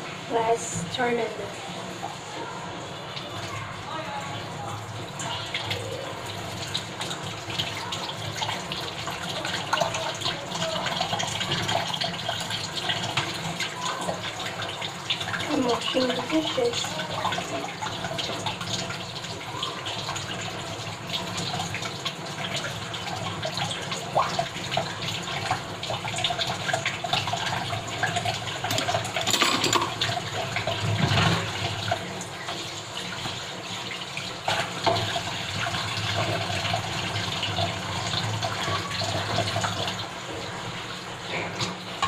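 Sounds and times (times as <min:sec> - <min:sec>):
tap water running into sink: 0:00.0 - 0:42.0
dishes clattering against sink: 0:28.2 - 0:32.0.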